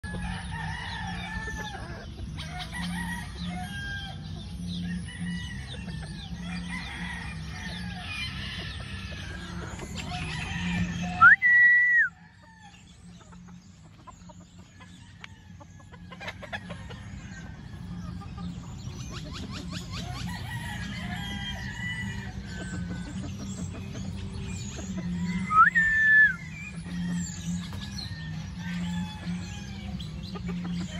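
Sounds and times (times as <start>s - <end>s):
chickens clucking: 0.0s - 30.9s
rooster crowing: 25.2s - 26.4s.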